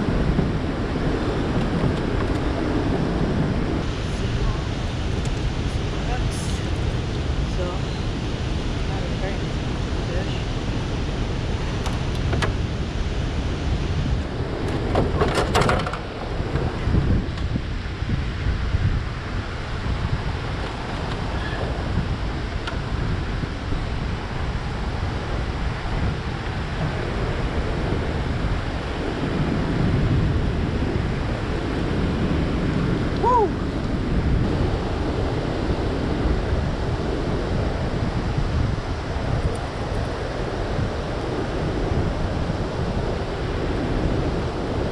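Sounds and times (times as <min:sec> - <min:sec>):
wind buffeting microphone: 0:00.0 - 0:44.9
water rushing through spillway: 0:16.0 - 0:44.9.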